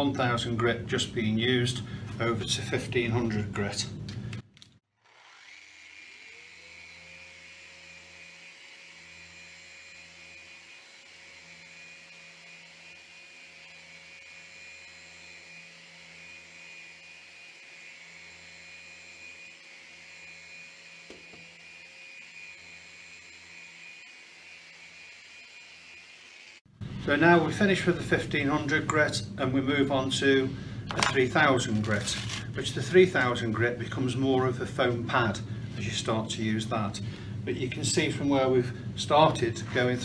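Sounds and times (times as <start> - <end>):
orbital sander whining: 4.9 - 27.8.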